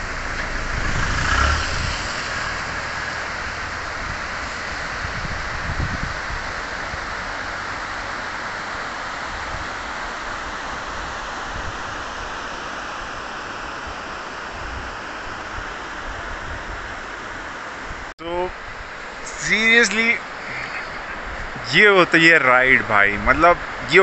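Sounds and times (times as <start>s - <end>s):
wind buffeting microphone: 0.0s - 7.9s
river rushing over rocks: 0.0s - 17.9s, 18.6s - 24.0s.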